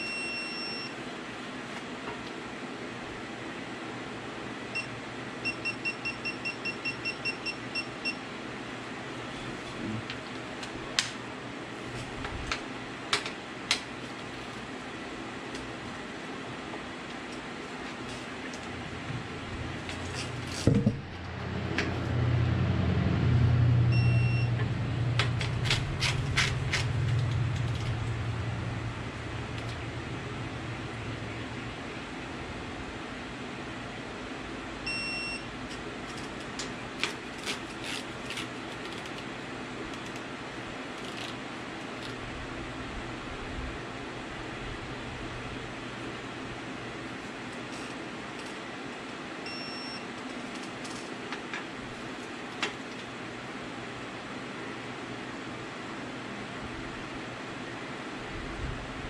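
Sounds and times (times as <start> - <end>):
torque wrench beep: 0.0 - 1.0, 4.8 - 8.2, 23.9 - 24.5, 34.9 - 35.5, 49.5 - 50.0
steady background noise: 0.0 - 59.0
background hum: 4.7 - 54.3.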